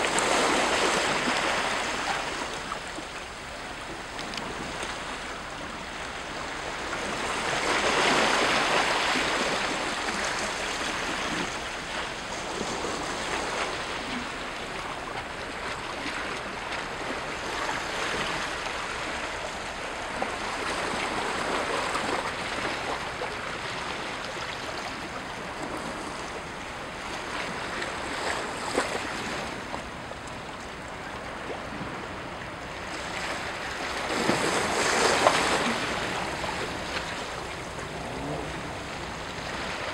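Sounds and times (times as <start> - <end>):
waves lapping against rocks: 0.0 - 39.9.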